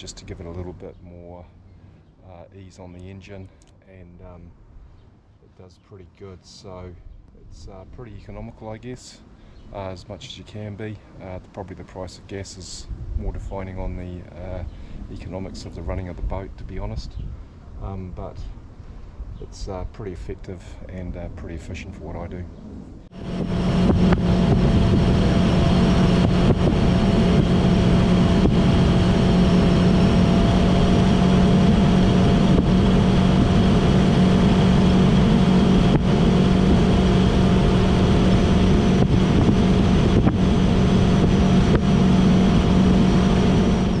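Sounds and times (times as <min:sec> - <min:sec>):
hull rushing through water: 0:23.1 - 0:44.0
outboard motor running: 0:23.1 - 0:44.0.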